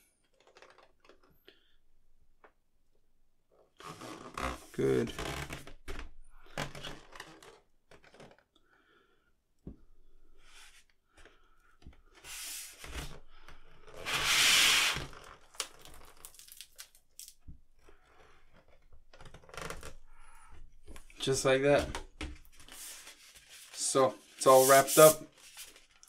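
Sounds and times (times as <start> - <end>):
vinyl sheet rustling and crinkling: 22.4 - 26.0.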